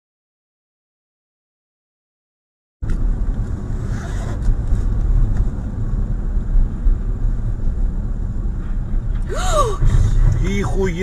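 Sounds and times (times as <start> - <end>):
car engine and road noise: 2.8 - 11.0.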